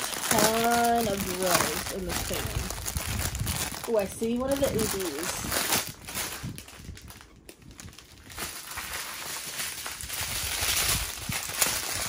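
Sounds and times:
plastic bags crinkling: 0.0 - 12.0.

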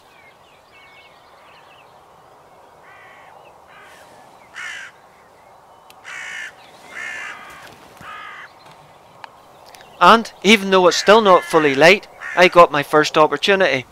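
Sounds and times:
crow cawing: 2.8 - 5.0, 6.0 - 8.6, 11.0 - 12.7.

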